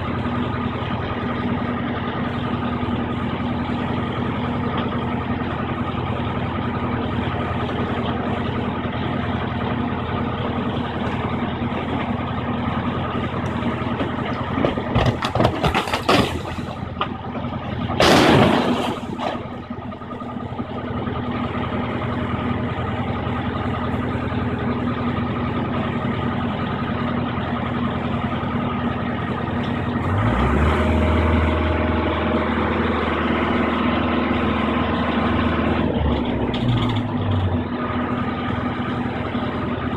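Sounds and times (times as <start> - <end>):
diesel excavator engine running: 0.0 - 39.9
debris clattering on ground: 14.0 - 17.4, 18.0 - 19.6
loud crash of debris: 14.4 - 17.1, 17.9 - 19.6.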